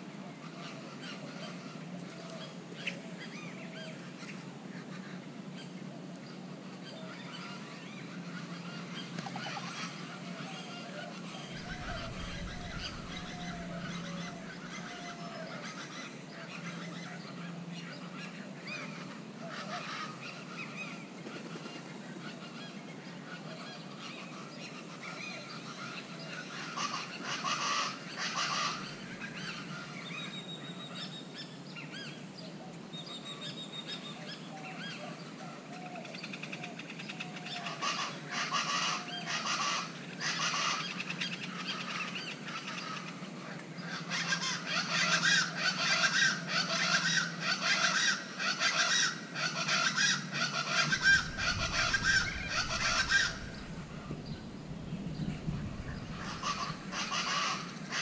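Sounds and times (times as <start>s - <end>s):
birds making harsh repeated calls: 6.9s - 30.4s, 34.3s - 58.0s.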